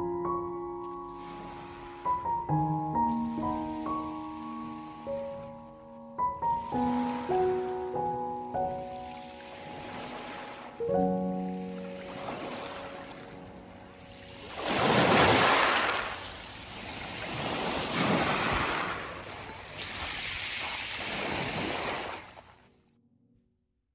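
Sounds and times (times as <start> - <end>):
waves washing onto pebbles: 14.1 - 22.6.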